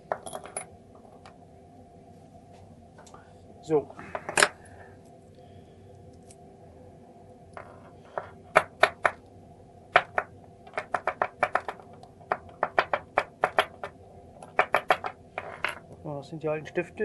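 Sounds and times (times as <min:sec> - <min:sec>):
lock cylinder knocking on wood: 0:10.0 - 0:15.8.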